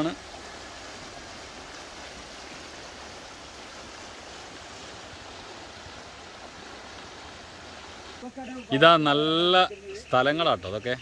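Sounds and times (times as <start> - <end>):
river rushing over stones: 0.0 - 8.3.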